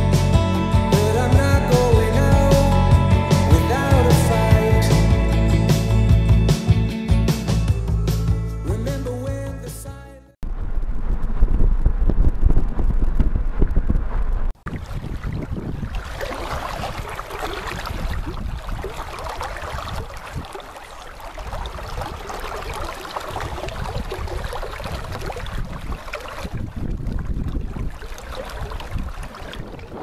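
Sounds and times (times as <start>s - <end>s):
wind rumbling on microphone: 10.5s - 30.0s
river water rushing: 16.0s - 26.4s.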